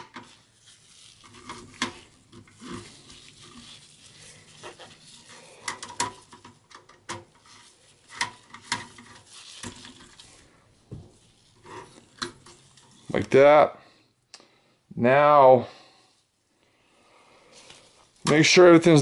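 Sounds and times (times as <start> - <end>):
screwdriver scraping and turning: 0.0 - 10.4, 11.4 - 13.4.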